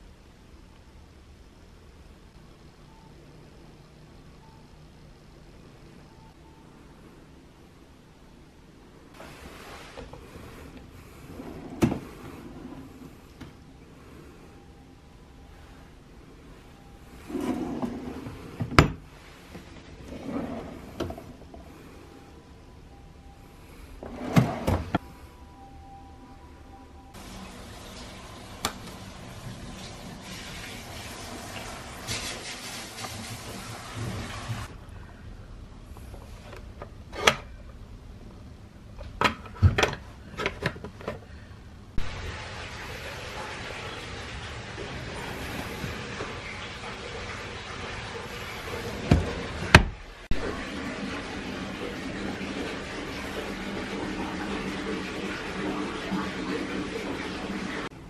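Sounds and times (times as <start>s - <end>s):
wooden drawers sliding: 11.3s - 13.1s, 17.2s - 19.0s, 19.8s - 21.5s, 24.0s - 25.0s
steady hiss: 27.2s - 34.8s
drawer knocking shut: 49.1s - 50.0s.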